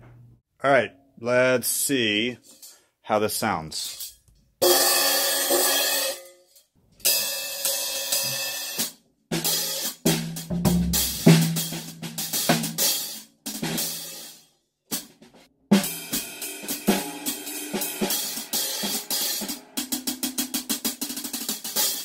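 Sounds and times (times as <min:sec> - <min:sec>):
drum kit playing: 0:04.6 - 0:06.3, 0:07.1 - 0:22.0
riveted cymbal ringing: 0:04.6 - 0:06.4, 0:15.8 - 0:20.8.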